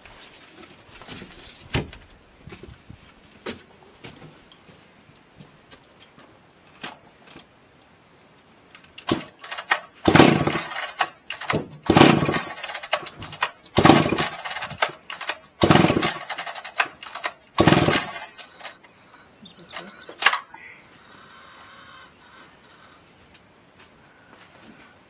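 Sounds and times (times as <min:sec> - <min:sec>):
chainsaw engine bursts: 0:09.0 - 0:18.8, 0:19.7 - 0:20.5.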